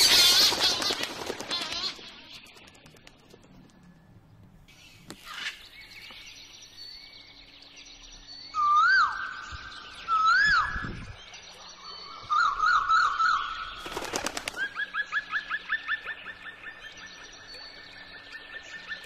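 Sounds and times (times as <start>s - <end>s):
chorus of faint bird calls: 0.0s - 19.0s
bird whistled notes: 8.4s - 11.1s.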